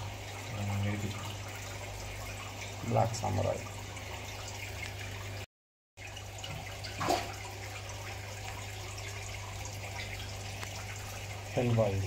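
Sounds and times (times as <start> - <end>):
low hum of aquarium equipment: 0.0 - 5.4, 6.0 - 12.0
running and trickling water: 0.0 - 12.0.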